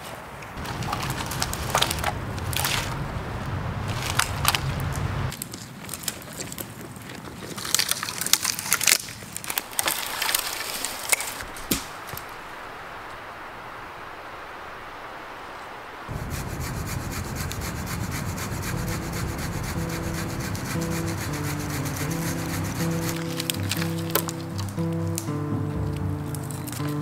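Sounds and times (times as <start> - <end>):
low rumble: 0.6 - 5.3, 16.1 - 23.8
dry branches cracking and crunching: 0.6 - 12.5, 17.6 - 27.0.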